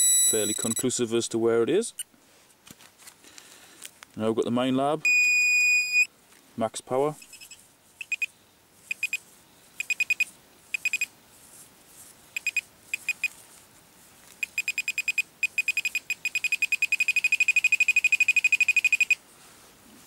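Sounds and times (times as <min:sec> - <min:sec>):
metal detector beeping: 0:00.0 - 0:00.9, 0:05.0 - 0:06.1, 0:07.2 - 0:08.3, 0:08.9 - 0:09.2, 0:09.8 - 0:11.1, 0:12.4 - 0:13.4, 0:14.4 - 0:19.2.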